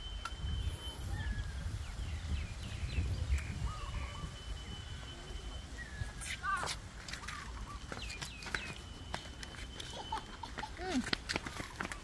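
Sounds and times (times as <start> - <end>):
low wind rumble: 0.0 - 7.9
birds chirping: 0.0 - 12.0.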